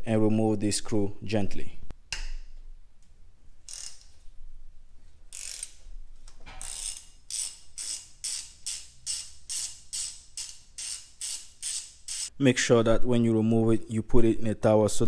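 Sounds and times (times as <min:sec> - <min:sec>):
hand ratchet clicking: 0:03.7 - 0:04.1, 0:05.3 - 0:05.8, 0:06.6 - 0:12.3.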